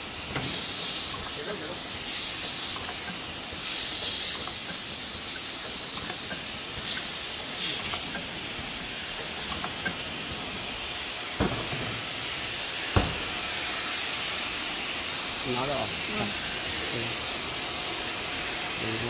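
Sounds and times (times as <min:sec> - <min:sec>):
compressed air hisses: 0:00.0 - 0:19.0
steady mechanical noise: 0:00.0 - 0:19.0
low thump: 0:11.4 - 0:12.0, 0:13.0 - 0:13.4.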